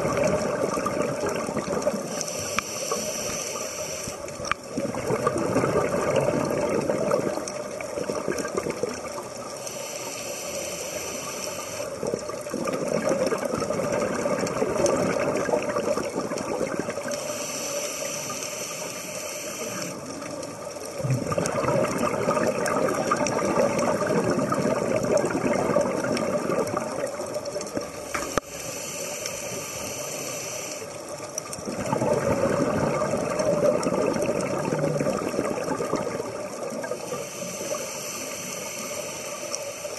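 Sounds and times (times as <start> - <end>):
bubbling exhale: 0.0 - 20.2, 21.0 - 27.4, 31.6 - 39.9
diver breathing through regulator: 2.1 - 4.2, 9.6 - 11.9, 17.1 - 20.0, 28.1 - 31.0, 36.9 - 39.9.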